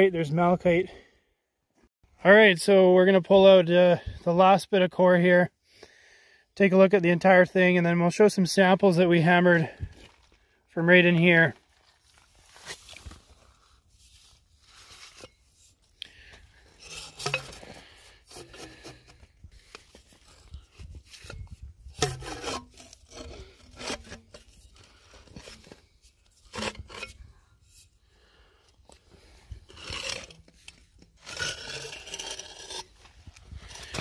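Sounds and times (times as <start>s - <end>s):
metal rod scraping rock and mud: 11.0s - 34.0s.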